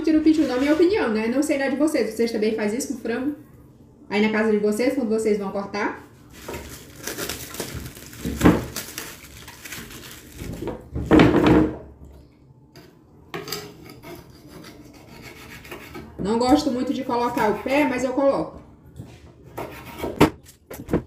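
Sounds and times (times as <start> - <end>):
knife scraping on wooden board: 13.4 - 16.2, 19.6 - 20.3.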